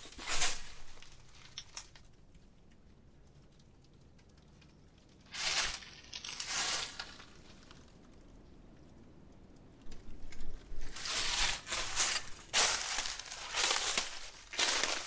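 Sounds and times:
footsteps crunching dry leaves: 0.0s - 1.1s, 5.3s - 7.6s, 10.8s - 15.0s.

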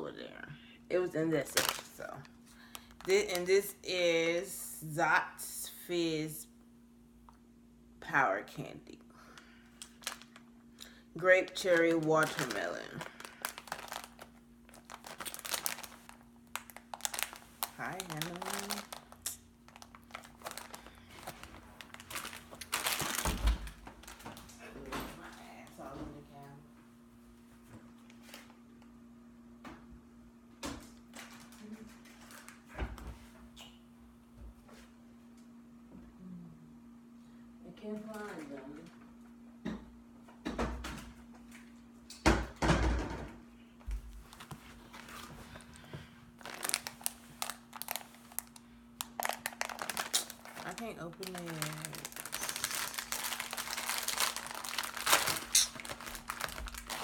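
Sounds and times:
plastic wrapper crinkling: 1.4s - 3.7s, 9.4s - 24.5s, 31.1s - 32.6s, 44.1s - 57.0s.

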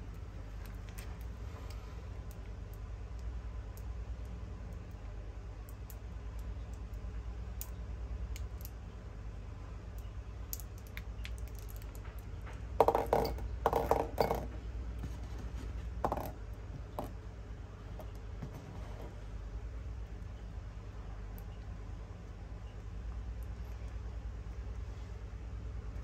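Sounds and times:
steady low hum: 0.0s - 26.0s
small hard objects clicking: 9.9s - 14.4s.

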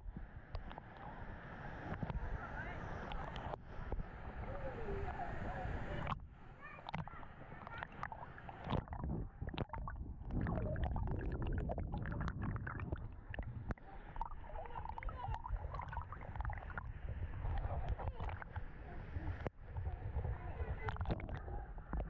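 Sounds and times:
water sloshing and gurgling: 3.0s - 4.1s, 6.0s - 22.0s
small splashes and pops: 6.8s - 18.7s, 20.8s - 22.0s
heavy low rumble: 8.7s - 22.0s.

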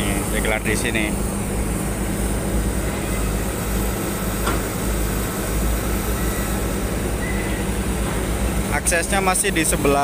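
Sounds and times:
heavy machinery diesel engines: 0.0s - 10.0s
brief high squeak: 7.2s - 7.7s.

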